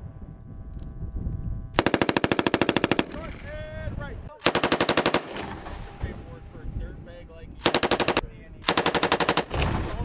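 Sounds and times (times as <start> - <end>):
machine gun bursts: 1.8 - 3.4, 4.4 - 5.6, 7.6 - 9.8.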